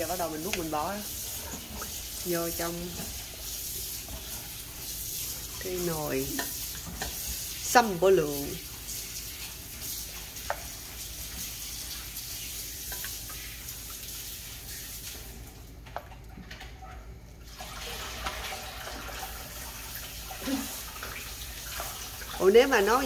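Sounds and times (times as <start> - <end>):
liquid splashing pour: 17.4 - 22.4.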